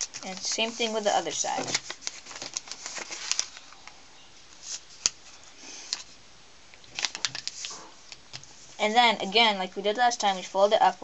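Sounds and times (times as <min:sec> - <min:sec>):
paper rustling and crinkling: 0:00.0 - 0:06.2, 0:06.9 - 0:08.8.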